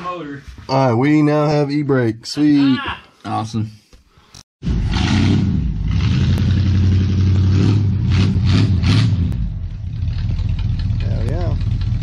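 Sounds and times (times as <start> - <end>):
car engine idling: 9.4 - 12.0.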